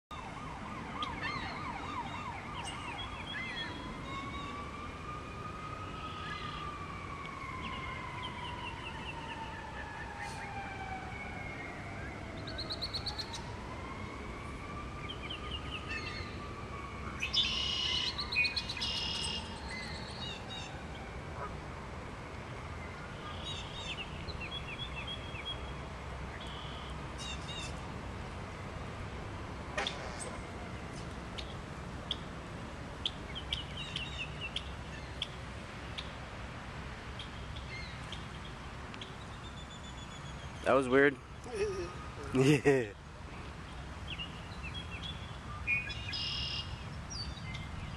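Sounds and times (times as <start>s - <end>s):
siren wailing: 0.1s - 21.5s
songbirds chirping: 1.0s - 4.6s, 5.6s - 13.6s, 14.8s - 21.5s, 22.2s - 27.8s, 29.9s - 36.2s, 36.9s - 47.9s.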